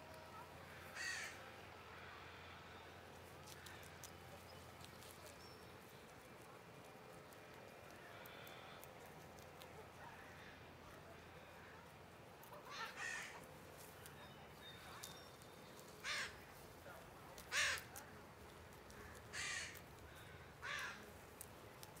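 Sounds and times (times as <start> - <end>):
crow cawing: 0.9 - 1.4, 12.7 - 13.4, 16.0 - 16.4, 17.5 - 18.0, 19.0 - 21.1.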